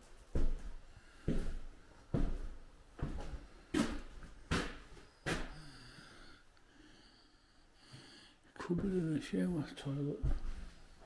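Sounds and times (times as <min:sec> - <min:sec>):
slow footsteps on floor: 0:00.0 - 0:05.6, 0:10.2 - 0:11.0.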